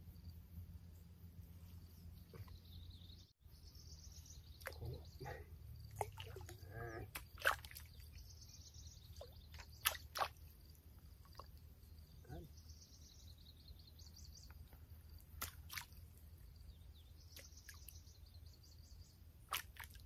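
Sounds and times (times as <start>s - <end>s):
insects chirring: 0.0s - 20.0s
water splashing and dripping: 4.6s - 5.0s, 5.9s - 8.2s, 9.2s - 10.6s, 15.2s - 16.2s, 19.5s - 20.0s.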